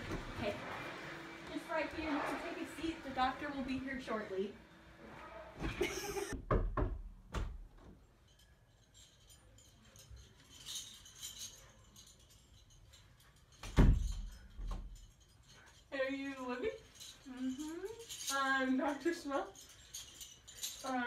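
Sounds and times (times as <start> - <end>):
bedding rustling: 0.0 - 4.2
light clicking and rattling: 7.7 - 21.0.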